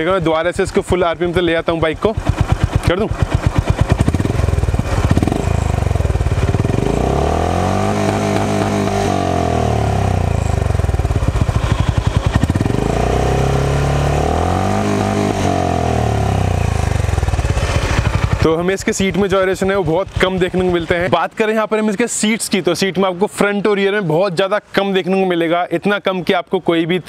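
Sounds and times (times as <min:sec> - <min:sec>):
motorcycle engine revving: 0:01.1 - 0:21.1.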